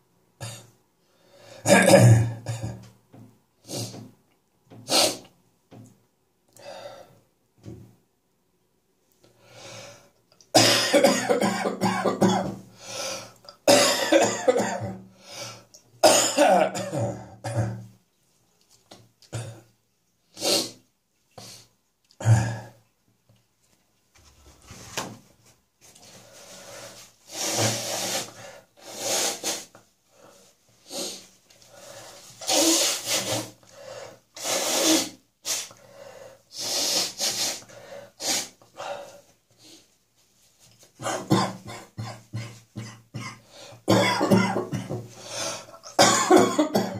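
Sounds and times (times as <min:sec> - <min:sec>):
person coughing: 0:01.7 - 0:02.8, 0:10.6 - 0:12.6, 0:13.7 - 0:15.0, 0:16.0 - 0:17.9, 0:41.0 - 0:45.1, 0:45.8 - 0:46.9
person clearing throat: 0:01.7 - 0:02.9, 0:10.6 - 0:12.6, 0:13.7 - 0:15.0, 0:16.0 - 0:17.9, 0:41.0 - 0:45.1, 0:45.9 - 0:46.9.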